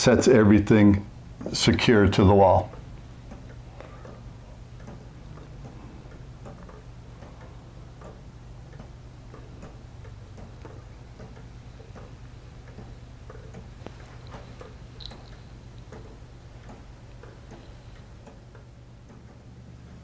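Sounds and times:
steady low hum: 0.0s - 20.0s
pendulum clock ticking: 1.1s - 20.0s.

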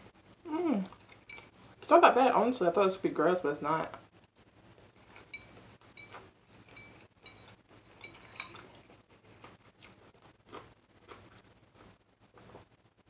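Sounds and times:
fork clinking against ceramic bowl: 1.2s - 1.5s, 5.2s - 8.8s.

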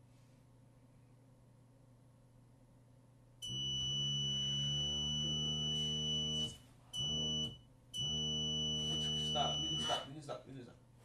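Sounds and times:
low horn-like alarm tone: 3.4s - 10.1s
thin high beep: 3.8s - 10.1s.

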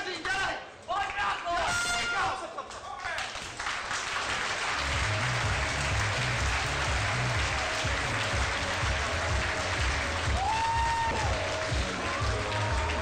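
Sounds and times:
crowd applauding and cheering: 2.9s - 13.0s
thumping bass music: 4.8s - 13.0s.

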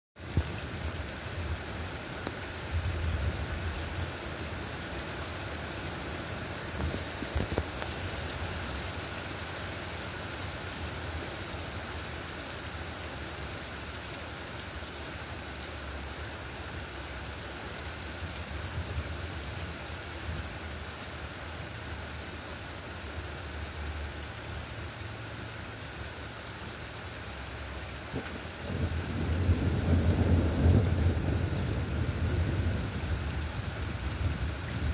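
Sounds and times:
heavy rain on wet street: 0.2s - 34.9s
thunder rumbling: 28.1s - 34.9s.

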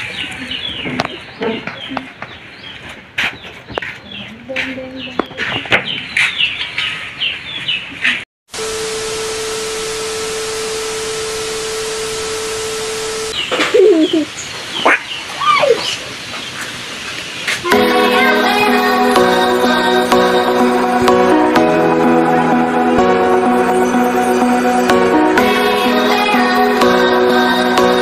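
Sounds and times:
birds chirping: 0.0s - 8.2s, 13.2s - 16.8s
tv static hiss with tone: 8.6s - 13.4s.

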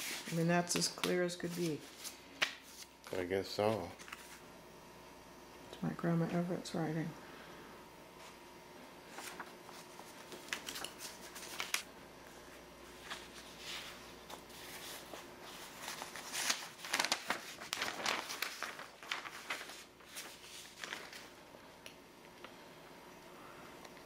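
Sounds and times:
newspaper being unfolded: 3.6s - 4.4s, 9.1s - 11.9s, 12.8s - 21.4s
stiff paper rustling and crinkling: 9.1s - 11.9s, 12.9s - 21.4s.

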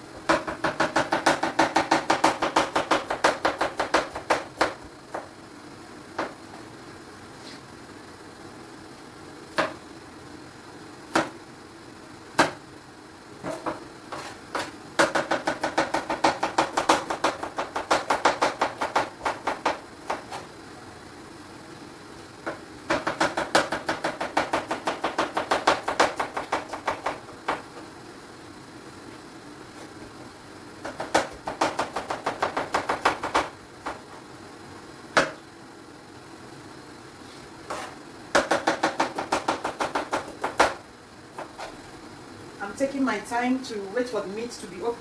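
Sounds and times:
knife chopping on cutting board: 22.5s - 27.8s, 37.7s - 40.8s.

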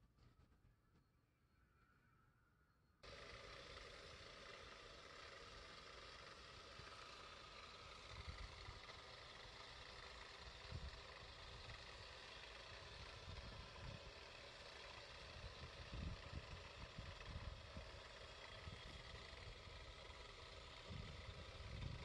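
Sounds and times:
faint outdoor background noise: 0.0s - 22.0s.

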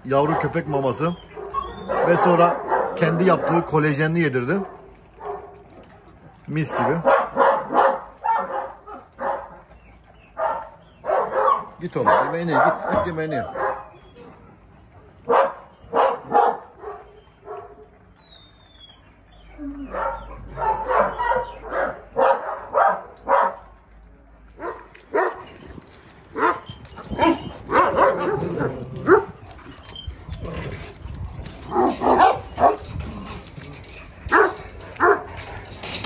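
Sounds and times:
dogs barking and yipping: 0.1s - 5.9s, 6.7s - 23.7s, 24.6s - 36.0s.

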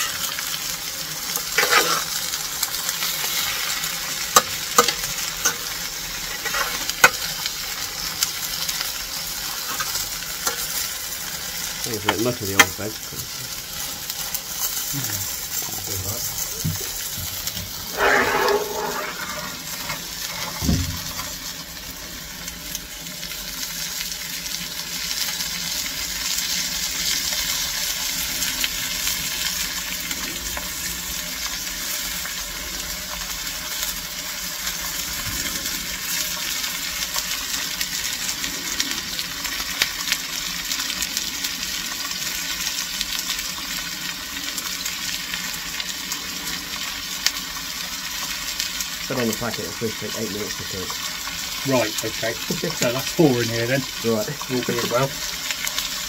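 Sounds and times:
coal fire hissing: 0.0s - 56.0s
food sizzling on a shovel: 0.0s - 56.0s
shovel scraping: 1.6s - 2.1s, 17.9s - 19.6s.

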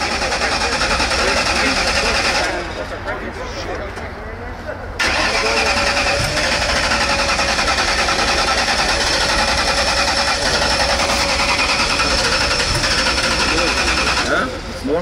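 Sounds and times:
race car engine running: 0.0s - 4.2s, 5.0s - 15.0s.

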